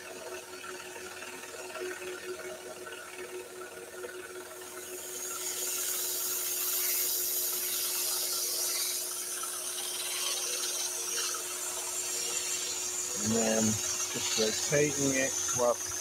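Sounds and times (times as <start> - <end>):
scroll saw cutting wood: 4.7 - 16.0.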